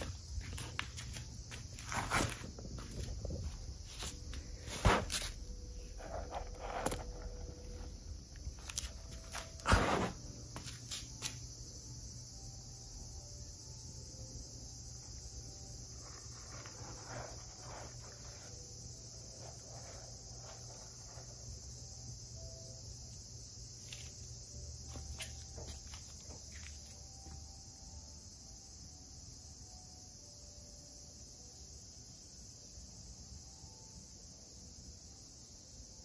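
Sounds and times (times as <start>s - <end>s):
cat digging in litter: 16.0s - 18.6s, 19.4s - 21.5s.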